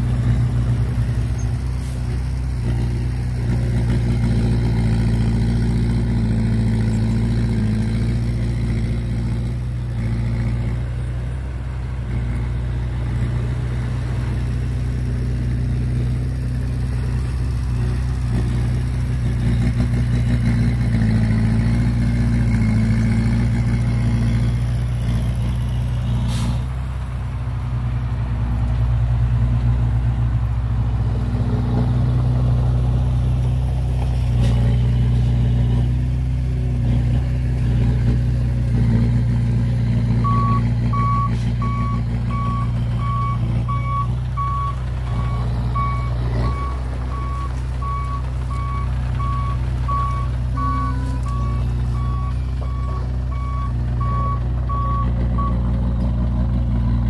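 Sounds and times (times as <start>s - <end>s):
heavy diesel engine rumbling: 0.0s - 57.0s.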